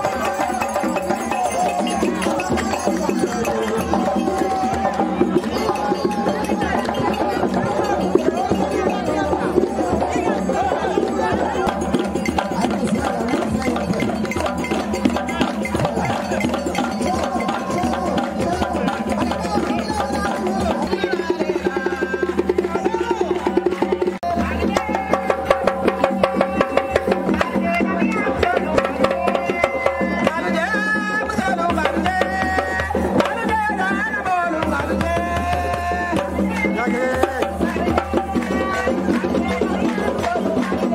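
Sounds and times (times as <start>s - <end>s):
djembe played by hand: 0.0s - 40.9s
drums: 0.0s - 40.9s.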